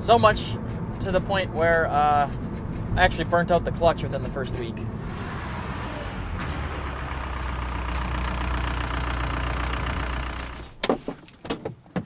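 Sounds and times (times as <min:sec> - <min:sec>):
diesel engine idling: 0:04.7 - 0:10.8.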